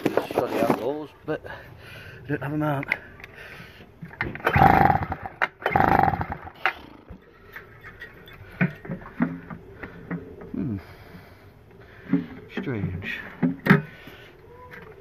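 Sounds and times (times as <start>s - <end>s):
generator recoil starter cranking: 4.2s - 6.8s.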